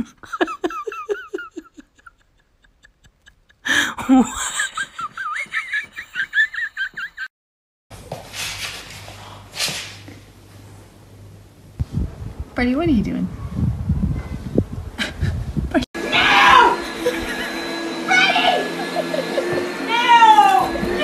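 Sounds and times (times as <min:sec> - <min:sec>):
high-pitched giggling laugh: 0:00.0 - 0:07.3, 0:18.2 - 0:19.9
person laughing: 0:00.0 - 0:07.3, 0:15.0 - 0:15.9, 0:16.8 - 0:20.7.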